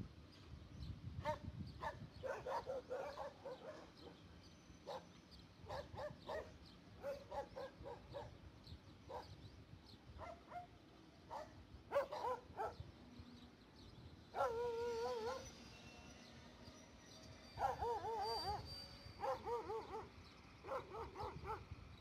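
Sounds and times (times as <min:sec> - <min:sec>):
dogs barking and yelping: 0:01.3 - 0:04.2, 0:04.8 - 0:05.0, 0:05.7 - 0:08.4, 0:11.3 - 0:12.8, 0:14.3 - 0:15.6, 0:17.6 - 0:21.7.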